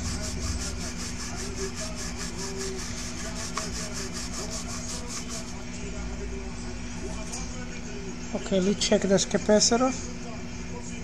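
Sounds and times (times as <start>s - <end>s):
brush scrubbing circuit board: 0.0s - 5.6s.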